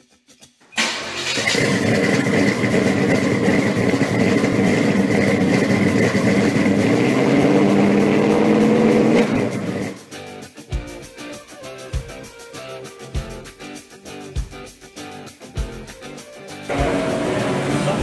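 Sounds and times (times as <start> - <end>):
guitar music: 0.0 - 2.8, 7.1 - 18.0
car engine running: 0.8 - 10.1, 16.7 - 18.0.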